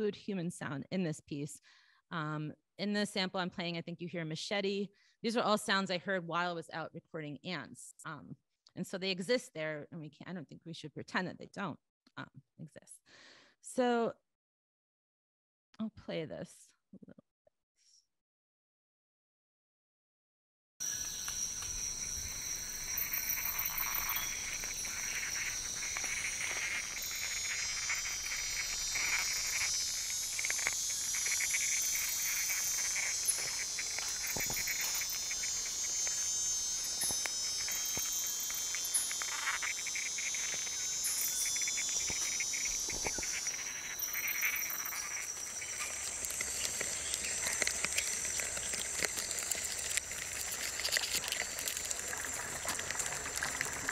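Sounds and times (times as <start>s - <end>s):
insects shrilling: 20.8s - 53.9s
close clicks and ticks: 21.0s - 53.9s.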